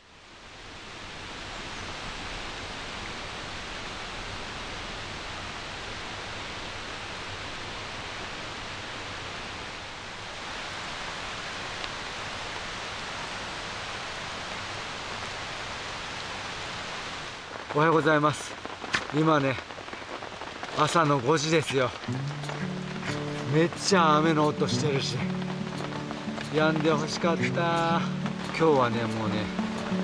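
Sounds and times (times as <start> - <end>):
steady rain falling: 0.0 - 30.0.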